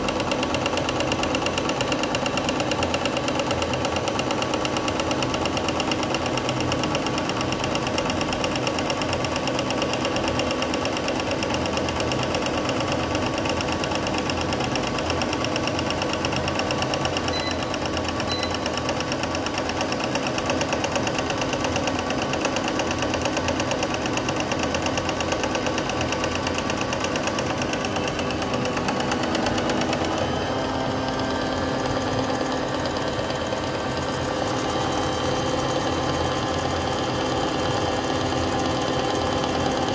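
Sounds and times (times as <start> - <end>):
appliance electric motor whirring: 25.4 - 39.9.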